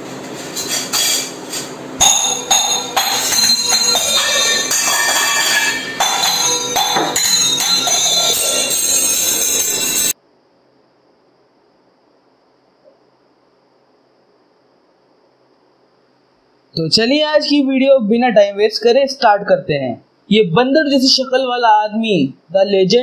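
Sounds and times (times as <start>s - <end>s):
clattering metallic percussion: 0.3s - 10.2s
loud music: 2.0s - 10.2s.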